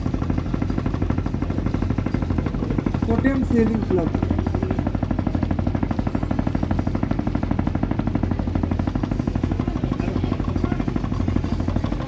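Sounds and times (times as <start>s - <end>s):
boat diesel engine chugging: 0.0s - 12.0s.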